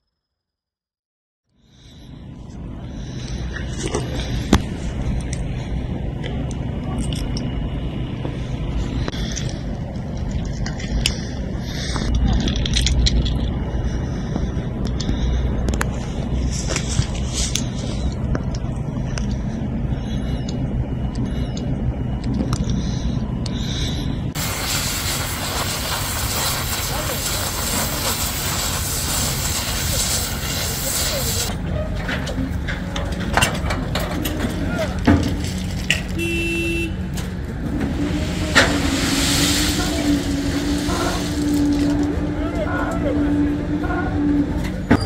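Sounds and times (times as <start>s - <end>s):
low mechanical rumble: 1.4s - 45.0s
crane engine drone: 1.5s - 45.0s
loud steady hiss: 24.4s - 31.5s.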